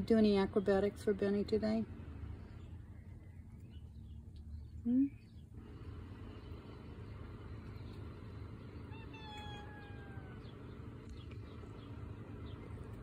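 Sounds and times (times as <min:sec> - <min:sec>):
steady low rumble: 0:00.0 - 0:13.0
cat meowing: 0:08.9 - 0:10.6.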